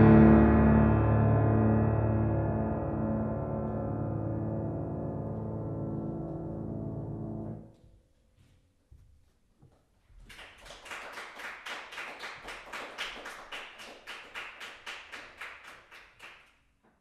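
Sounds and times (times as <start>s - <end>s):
audience clapping: 10.2s - 16.8s.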